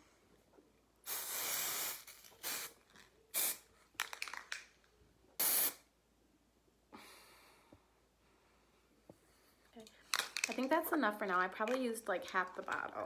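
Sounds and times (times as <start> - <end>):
aerosol spray hissing: 1.1 - 3.6, 5.4 - 5.8.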